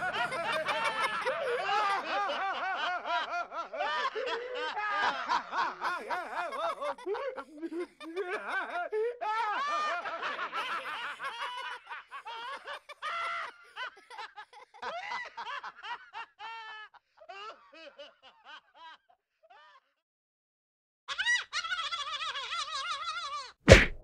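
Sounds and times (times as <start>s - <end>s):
high-pitched laughter: 0.0s - 15.3s, 21.1s - 23.6s.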